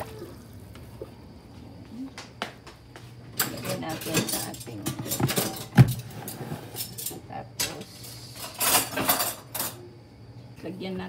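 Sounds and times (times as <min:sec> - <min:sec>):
items handled on kitchen counter: 0:03.4 - 0:07.8.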